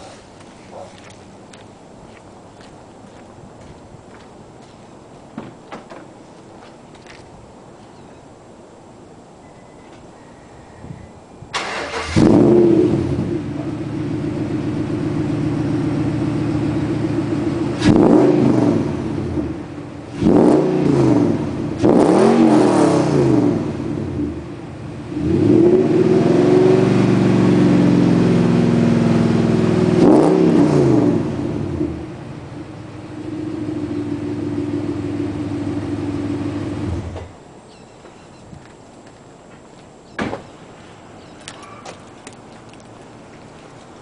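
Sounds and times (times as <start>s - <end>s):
vee eight engine idling and revving: 11.6s - 37.3s.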